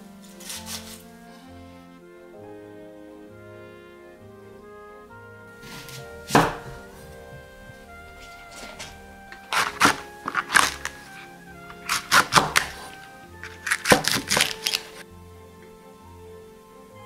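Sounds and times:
soft background music: 0.0 - 17.0
knife chopping onto wooden board: 6.3 - 6.7.

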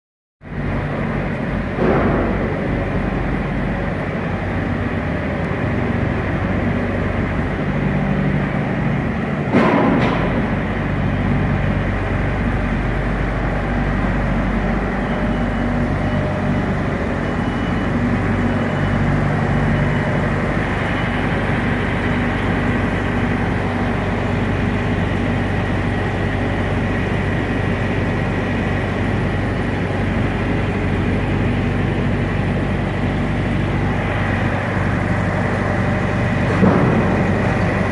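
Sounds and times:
diesel truck idling: 0.5 - 37.9
sharp knocks: 9.5 - 10.6.

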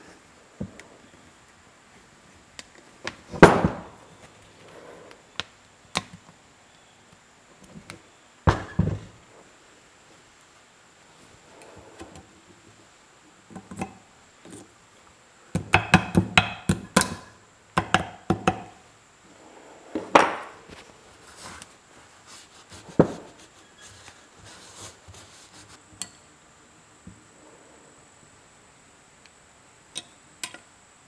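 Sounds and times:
tools knocking on wooden workbench: 15.6 - 18.7.

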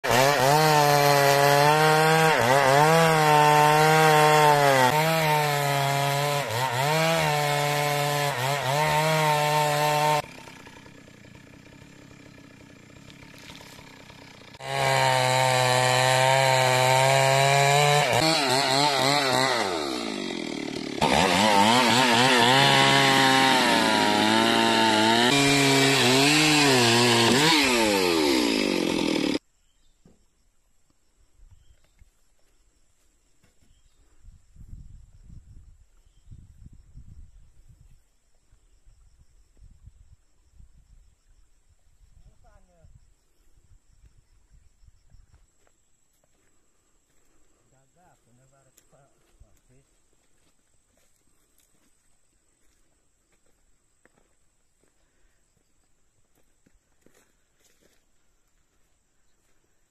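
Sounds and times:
chainsaw cutting logs: 0.0 - 29.4.

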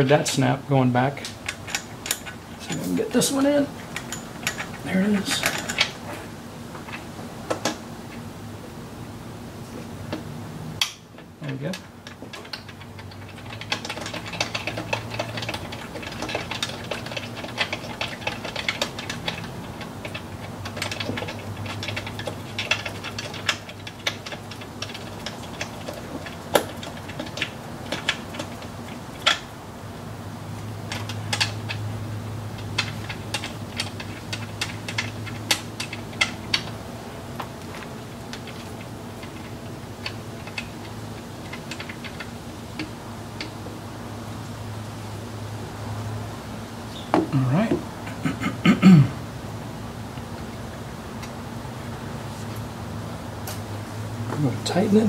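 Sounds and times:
metal clinks: 3.8 - 6.0.

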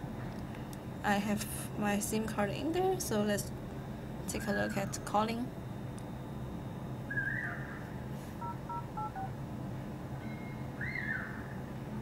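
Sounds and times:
two-tone dial beeps: 8.4 - 9.3.

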